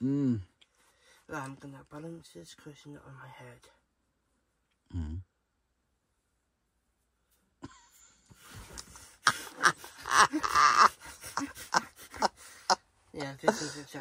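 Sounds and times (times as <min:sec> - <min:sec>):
breathy laughter: 0:09.2 - 0:12.8.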